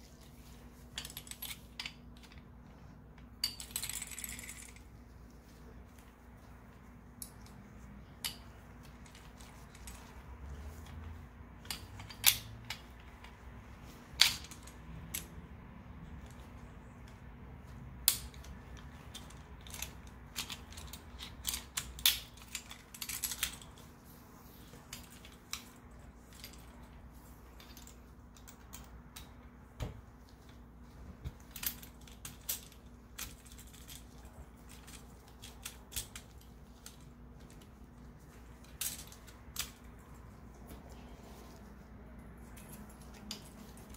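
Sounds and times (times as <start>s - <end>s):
steel pistol parts clicking: 11.6s - 13.3s, 18.0s - 23.8s, 31.5s - 37.7s.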